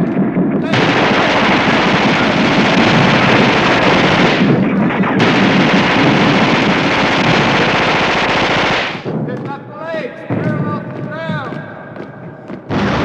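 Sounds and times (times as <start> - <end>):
explosions: 0.0 - 9.4, 12.7 - 13.0
gunfire: 0.0 - 9.4, 12.7 - 13.0.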